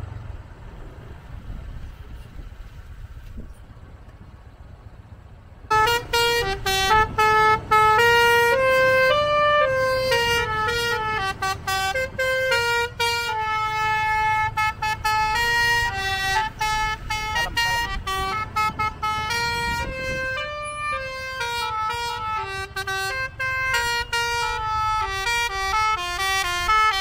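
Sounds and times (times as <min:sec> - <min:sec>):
coach engine rumble: 0:00.0 - 0:27.0
musical air horn melody: 0:05.7 - 0:27.0.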